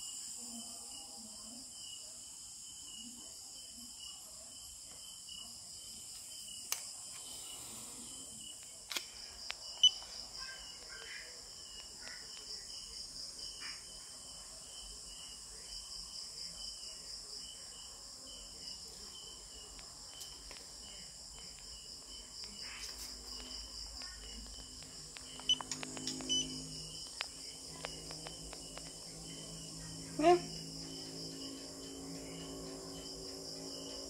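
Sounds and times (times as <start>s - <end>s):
crickets chirping: 0.0s - 34.0s
sharp clicks and taps: 24.0s - 26.4s.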